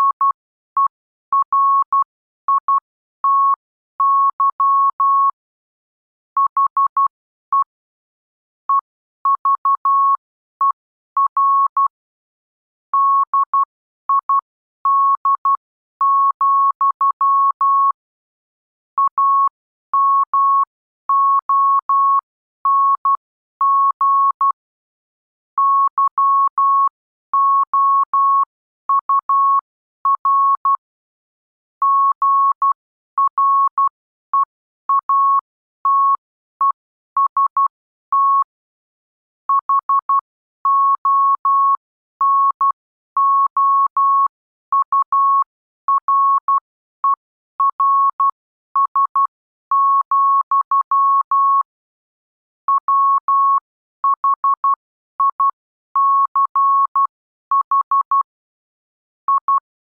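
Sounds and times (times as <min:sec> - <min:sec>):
morse code beeps: 0:00.0 - 0:05.4, 0:25.6 - 0:30.8, 0:31.8 - 0:38.6, 0:39.5 - 0:51.8, 0:52.7 - 0:58.4, 0:59.2 - 0:59.7.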